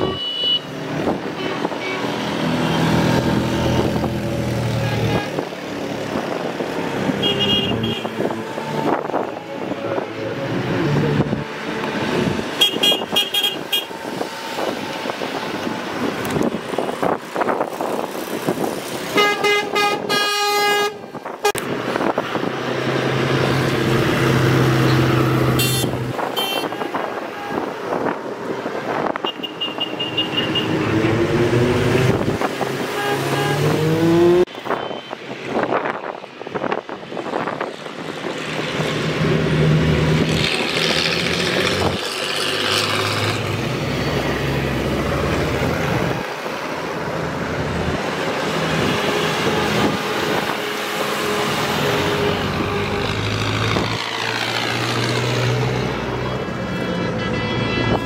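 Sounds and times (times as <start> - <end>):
vehicle horn: 0.0 - 0.7, 7.2 - 8.3, 12.6 - 14.0, 19.2 - 21.6, 25.6 - 27.7, 32.9 - 33.8, 56.2 - 58.0
trucks and tractors passing: 0.0 - 58.0
engine revving: 30.6 - 34.5, 38.7 - 46.2.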